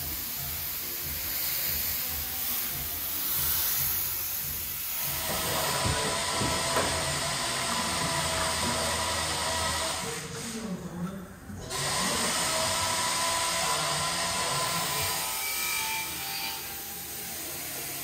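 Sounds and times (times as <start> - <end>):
spray gun hissing: 0.0 - 5.7.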